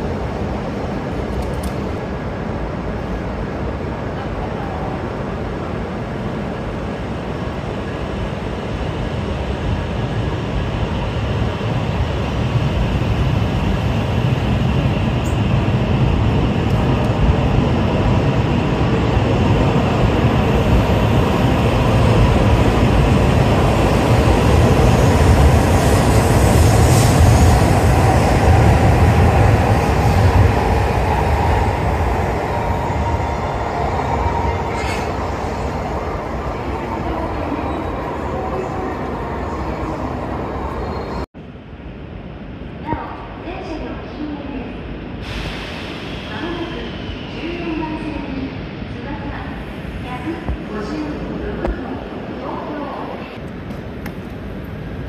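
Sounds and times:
train rumble and rushing: 0.0s - 55.0s.

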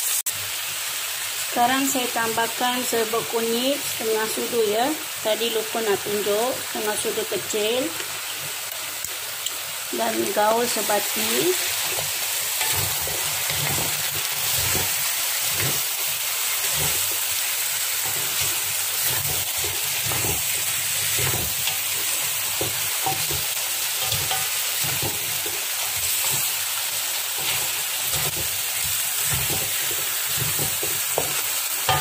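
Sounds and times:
meat sizzling in a wok: 0.0s - 32.0s
spatula scraping and knocking pan: 10.3s - 26.6s, 27.3s - 32.0s.

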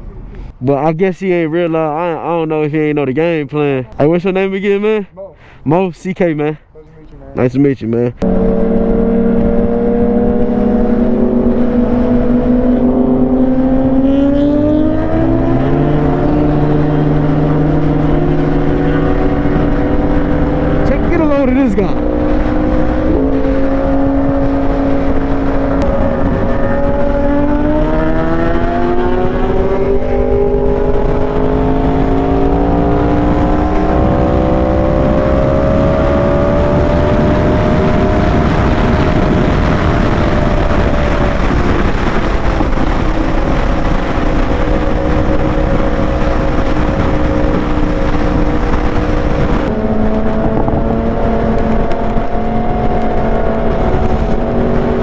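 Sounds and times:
motorcycle engine at speed: 8.2s - 55.0s
wind rush: 8.2s - 55.0s.

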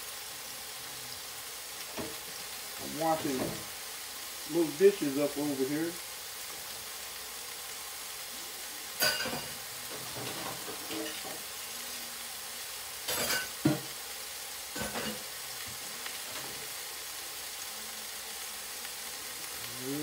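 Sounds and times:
meat sizzling in a pot: 0.0s - 20.0s
metal kitchenware clanks: 9.0s - 9.5s.

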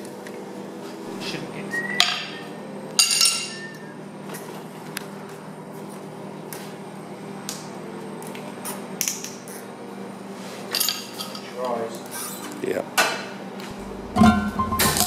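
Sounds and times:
steady low hum: 13.6s - 15.0s
ringing metal clank: 13.8s - 15.0s.

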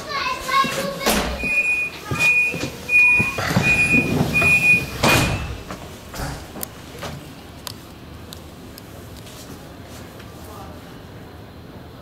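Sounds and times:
train rumbling: 0.0s - 12.0s
doors shutting with a bang: 0.9s - 7.2s
high warning beeps: 1.4s - 5.7s.

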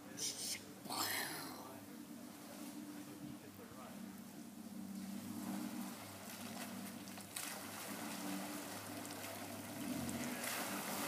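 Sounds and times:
truck engine at low speed: 2.0s - 11.0s
water sloshing around tyres: 4.8s - 11.0s.

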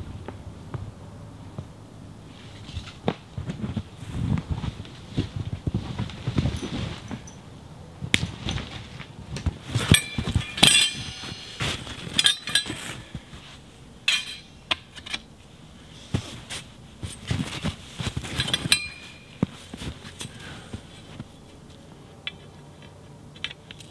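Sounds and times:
metal tent poles clinking: 6.2s - 7.5s, 8.2s - 9.0s, 9.7s - 15.3s, 16.5s - 21.1s, 22.2s - 23.9s.

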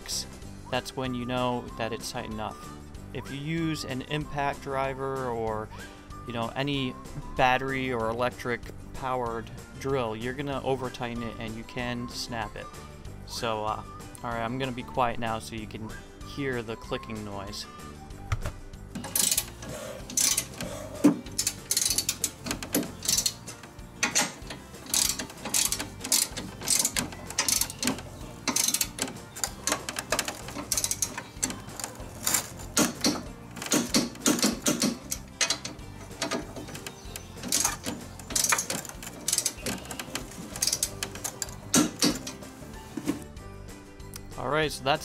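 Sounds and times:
torque wrench clicking: 19.0s - 42.5s.

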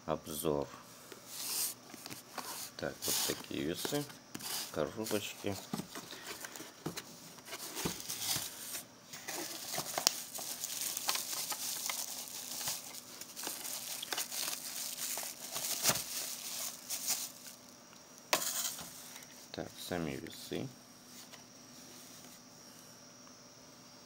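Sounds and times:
plastic wrapping crinkling: 1.9s - 17.6s.

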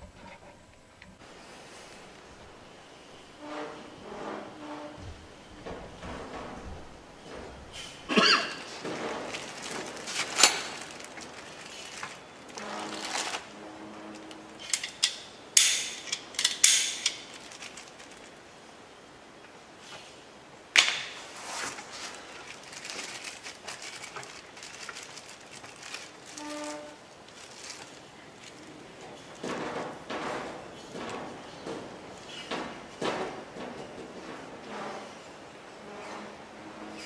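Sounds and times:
plastic bag crinkling: 7.7s - 15.0s, 16.0s - 18.6s, 21.2s - 30.0s.

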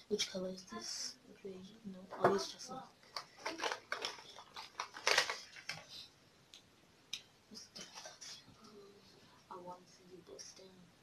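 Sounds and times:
makeup items clicking and rustling: 3.0s - 6.0s.

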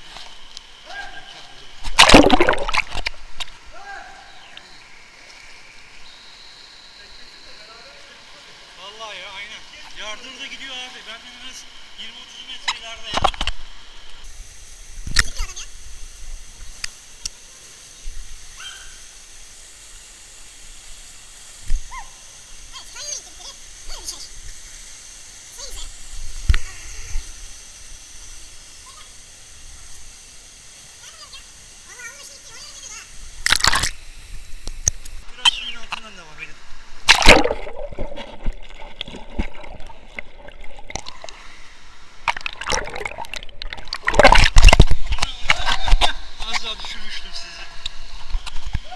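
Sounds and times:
stream water rushing: 1.9s - 3.1s, 37.0s - 45.2s.

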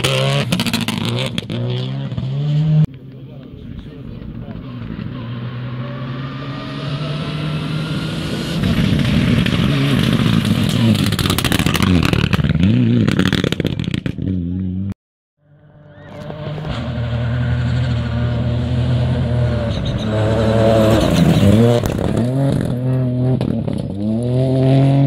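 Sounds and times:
rally car engine revving: 0.0s - 2.9s, 3.7s - 14.9s, 15.5s - 25.0s
rally car approaching: 0.0s - 25.0s.

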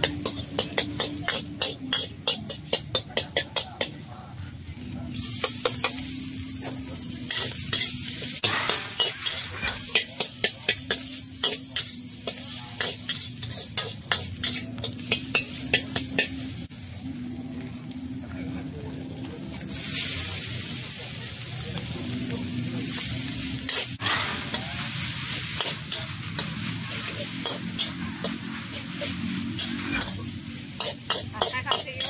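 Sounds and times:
metal spatula scraping a wok: 0.0s - 3.9s, 6.9s - 16.7s, 22.9s - 32.0s
food sizzling in hot oil: 0.0s - 32.0s.

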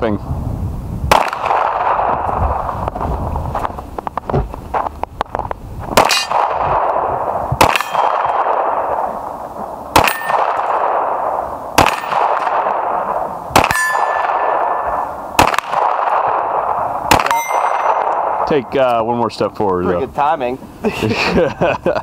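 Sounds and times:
pistol shots: 1.1s - 2.4s, 6.0s - 18.9s
steel target ringing: 6.0s - 9.0s, 10.0s - 19.0s.

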